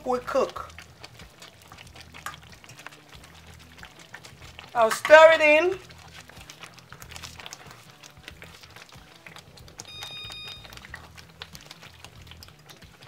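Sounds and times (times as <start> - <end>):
soup bubbling: 0.0 - 13.0
short high beep: 9.9 - 10.7.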